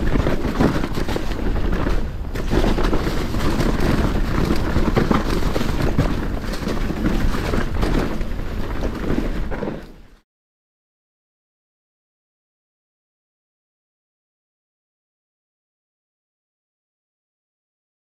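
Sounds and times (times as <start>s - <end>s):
wind rushing over microphone: 0.0s - 10.1s
mountain bike rattling and knocking: 0.0s - 10.2s.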